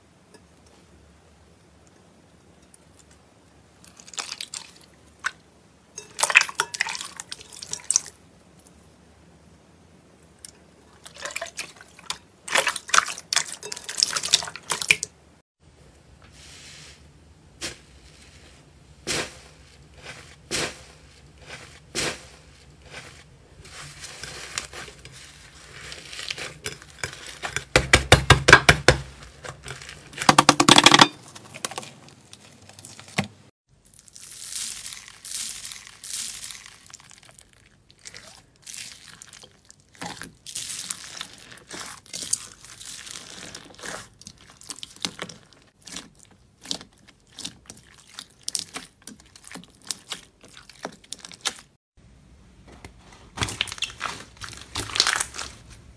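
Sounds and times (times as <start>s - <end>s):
slime squelching by hand: 10.4s - 15.1s, 19.0s - 51.8s, 53.3s - 55.8s
foam beads crackling in slime: 19.1s - 27.6s, 33.8s - 51.7s, 53.5s - 55.6s.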